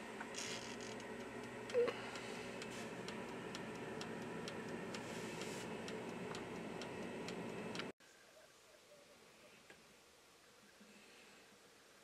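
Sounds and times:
oven fan hum: 0.0 - 7.9
timer dial ticking: 0.7 - 7.9.

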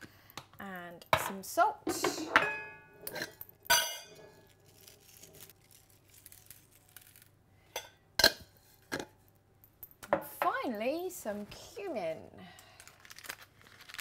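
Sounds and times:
glassware clinking: 2.0 - 4.2.

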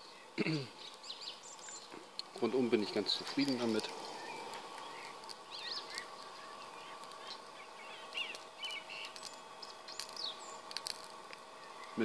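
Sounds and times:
birds chirping: 0.0 - 12.0
grill fan whirring: 0.0 - 12.0
sharp clicks: 3.3 - 12.0.

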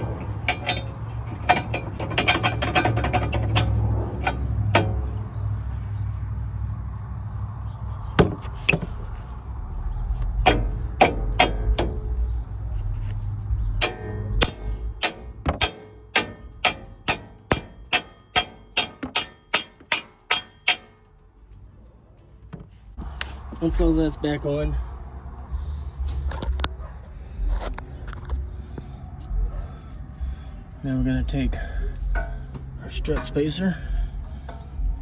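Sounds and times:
hammer striking steel: 0.5 - 5.1, 10.4 - 12.1, 13.8 - 21.0.

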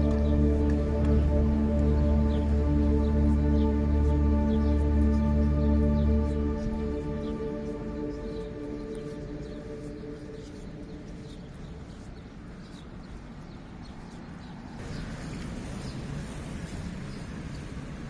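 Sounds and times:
soft music: 0.0 - 12.4
birds chirping: 0.0 - 17.8
traffic rumble: 0.0 - 18.0
hissy traffic noise: 14.7 - 18.0.

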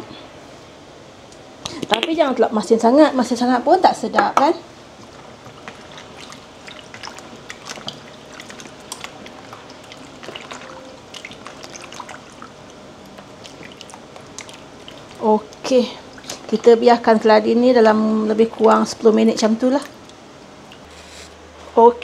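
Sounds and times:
hand sloshing water in basin: 5.5 - 15.3
small splashes and drips: 5.5 - 16.6, 19.7 - 20.9.

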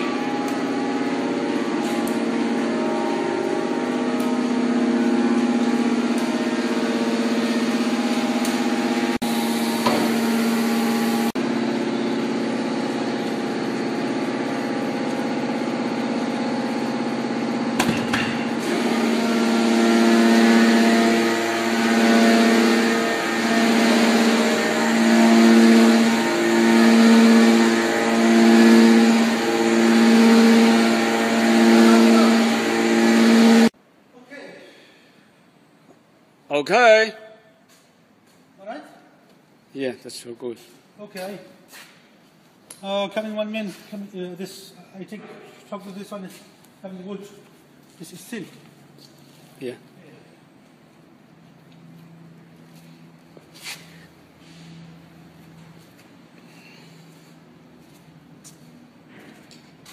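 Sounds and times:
hydraulic pump humming: 0.0 - 33.8.

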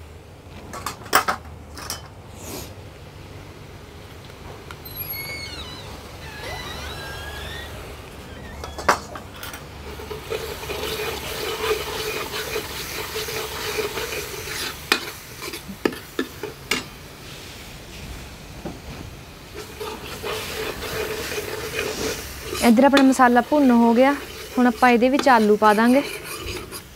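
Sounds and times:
spices sizzling in oil: 8.4 - 17.6, 19.5 - 26.9
metal ladle scraping pan: 8.6 - 16.8, 19.6 - 26.9.

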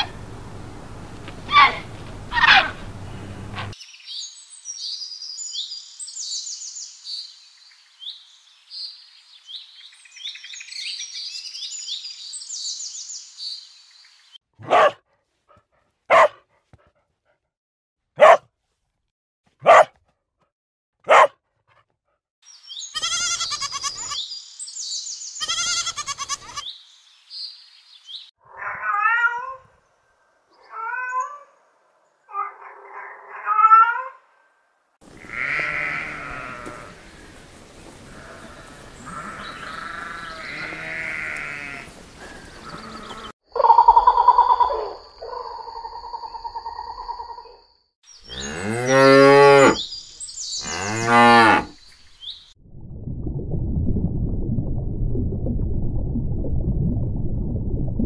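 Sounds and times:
dog barking: 1.5 - 2.8, 14.6 - 17.0, 18.2 - 18.5, 19.6 - 20.0, 21.0 - 21.9, 44.6 - 45.5
bird chirping and twittering: 2.4 - 14.4, 22.5 - 25.6, 41.9 - 49.1, 49.7 - 51.0, 51.7 - 52.5.

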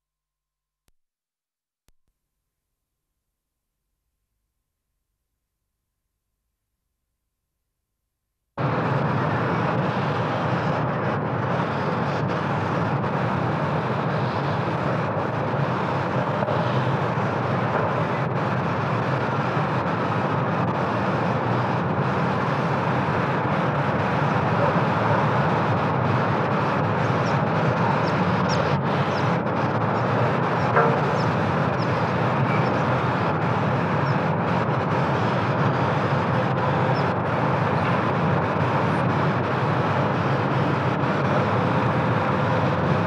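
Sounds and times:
street traffic rumble: 8.6 - 43.0.

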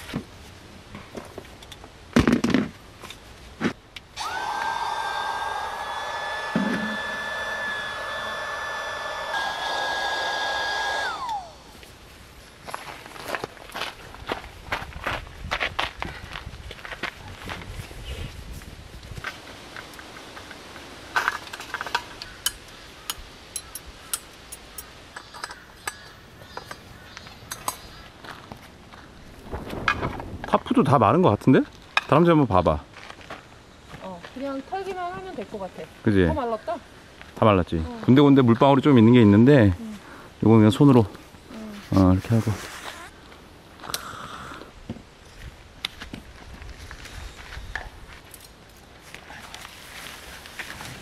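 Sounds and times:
small electric motor whining: 4.2 - 11.6.

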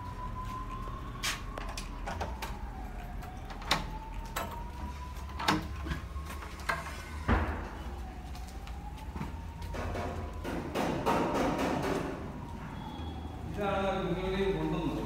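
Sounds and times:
faint wailing siren: 0.0 - 15.0
wooden doors thumping open: 7.3 - 7.9.

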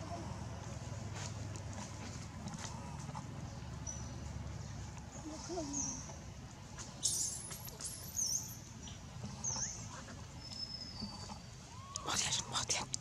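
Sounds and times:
high-pitched squeaks and chirps: 7.0 - 8.6, 9.4 - 12.4.

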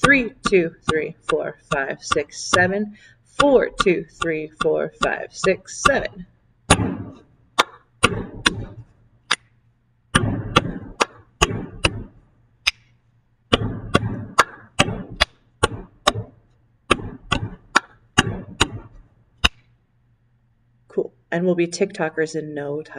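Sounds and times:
hands tapping on wooden desk: 13.5 - 19.6.

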